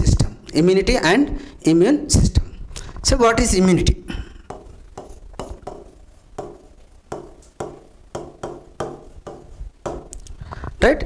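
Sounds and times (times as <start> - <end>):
pen tapping on touch screen: 4.5 - 10.3.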